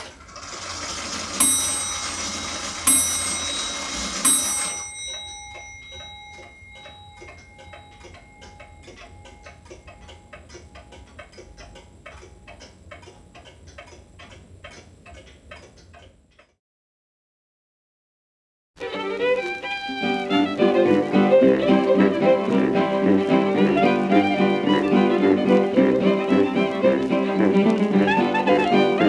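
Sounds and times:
clock striking: 0.5 - 14.4
clock ticking: 1.4 - 16.6, 19.8 - 29.0.

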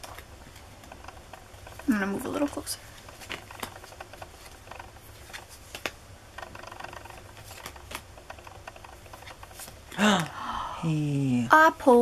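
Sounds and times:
trading cards flipped by hand: 2.4 - 10.0.

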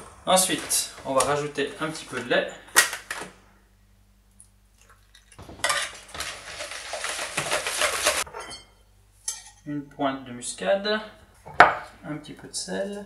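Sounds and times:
whisk beating in plastic bowl: 5.6 - 8.2.

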